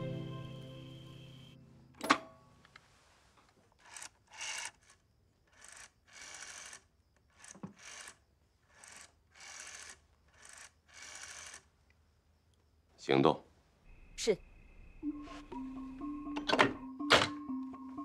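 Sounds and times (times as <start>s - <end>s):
rotary telephone dial whirring: 3.8s - 11.7s.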